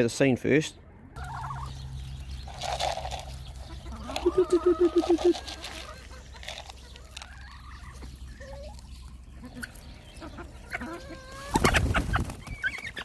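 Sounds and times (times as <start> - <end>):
hens clucking: 1.1 - 13.0
wings flapping and squawking: 2.3 - 8.6, 10.4 - 13.0.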